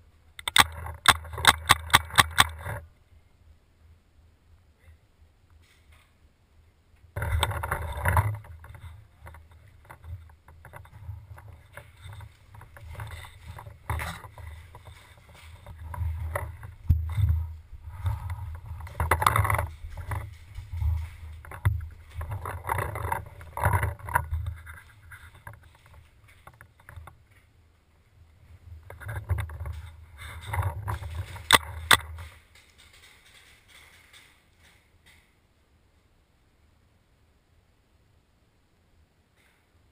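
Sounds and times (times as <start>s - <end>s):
sharp clicks: 0.4s - 2.8s
footsteps: 7.2s - 35.3s.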